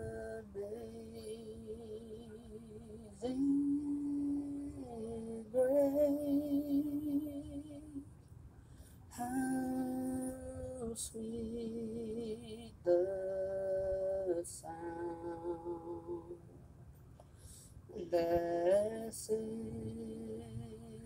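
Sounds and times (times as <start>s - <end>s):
person singing long notes: 0.0s - 8.1s.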